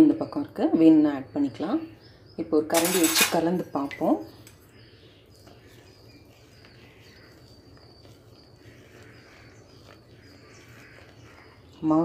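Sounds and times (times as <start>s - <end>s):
ladle stirring thick batter: 2.8s - 12.0s.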